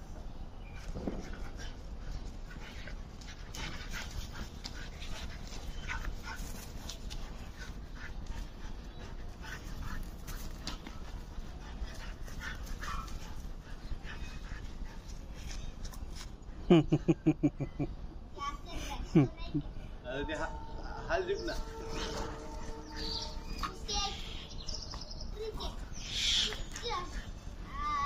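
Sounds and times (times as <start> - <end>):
dogs whimpering: 21.0 - 24.5.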